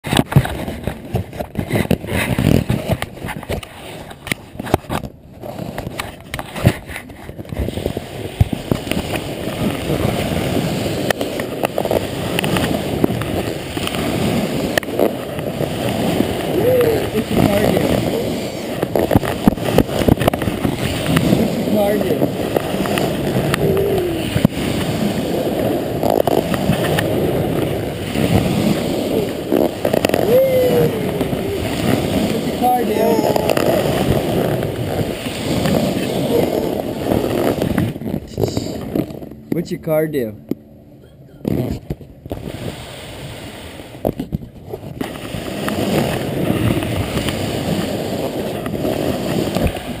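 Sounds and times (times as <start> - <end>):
cardboard box scraping on floor: 0.1 - 16.2, 31.8 - 39.3.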